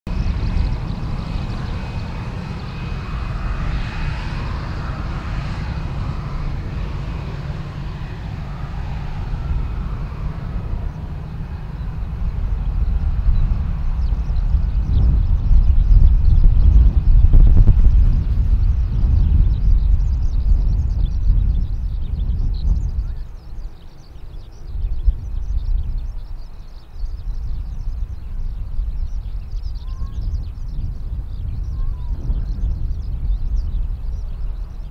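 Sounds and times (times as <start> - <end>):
birds chirping: 0.1 - 17.1, 19.0 - 34.9
jet engines rumbling with whine: 0.1 - 34.9.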